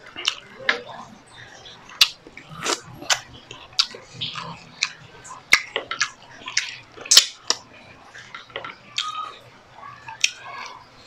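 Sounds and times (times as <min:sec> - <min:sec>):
wet chewing clicks and smacks: 0:00.0 - 0:09.4, 0:10.1 - 0:10.8.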